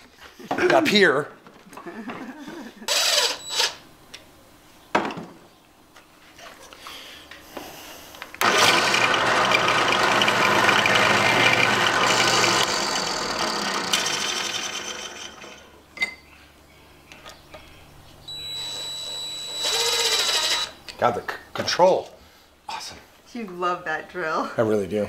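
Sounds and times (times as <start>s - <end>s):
cordless drill driving into wood: 2.9s - 3.8s, 8.4s - 15.6s, 18.3s - 20.8s
drill whining driving a screw: 2.9s - 3.8s, 8.4s - 15.6s, 18.3s - 20.8s.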